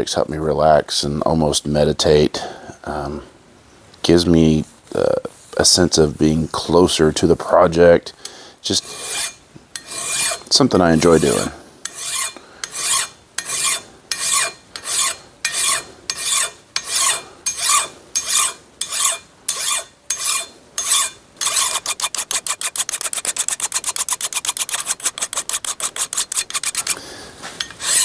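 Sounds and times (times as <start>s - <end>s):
hand file rasping on metal: 8.8s - 27.0s, 27.6s - 28.0s.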